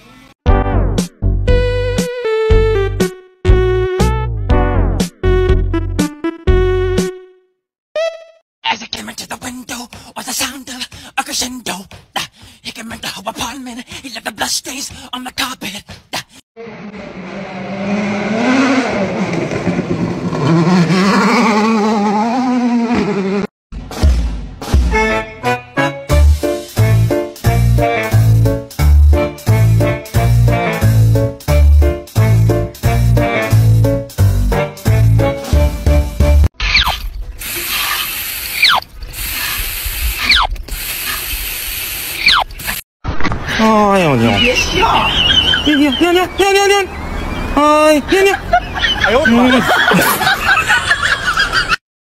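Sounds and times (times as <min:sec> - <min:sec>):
rally car engine revving: 0:16.6 - 0:23.5
water spraying from exhaust pipe: 0:37.4 - 0:42.8.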